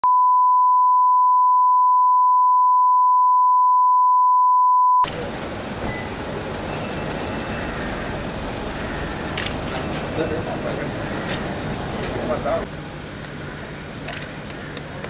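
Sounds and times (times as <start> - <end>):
steady test tone beep: 0.0 - 5.0.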